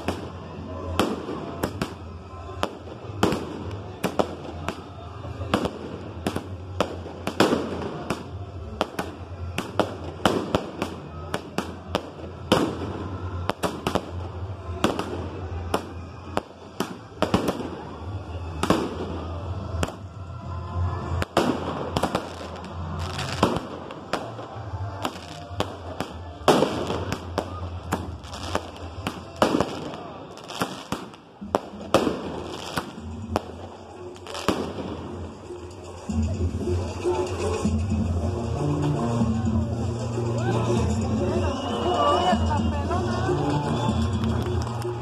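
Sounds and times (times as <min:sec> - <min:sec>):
fireworks bangs and crackle: 0:00.0 - 0:45.0
music playing: 0:00.0 - 0:45.0.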